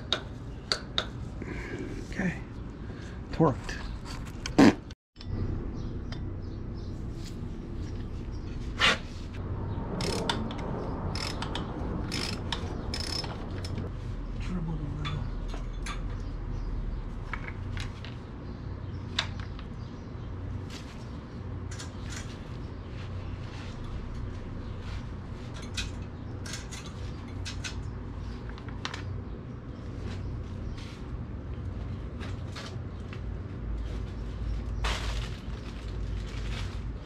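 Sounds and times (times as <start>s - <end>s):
ratchet metal clicks: 10.0s - 13.8s.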